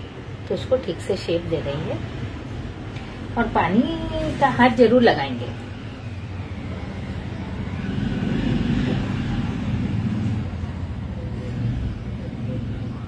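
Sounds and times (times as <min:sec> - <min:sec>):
vehicle engine rumble: 0:05.6 - 0:13.0.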